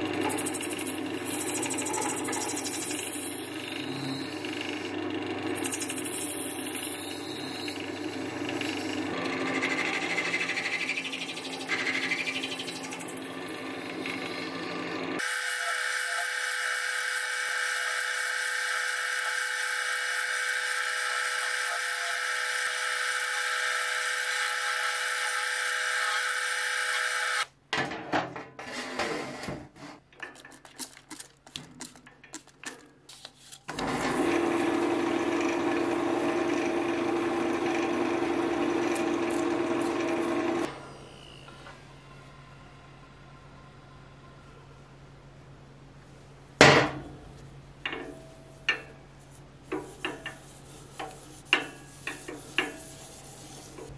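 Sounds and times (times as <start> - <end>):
wood lathe cutting whine: 0.0 - 27.5, 33.8 - 40.7.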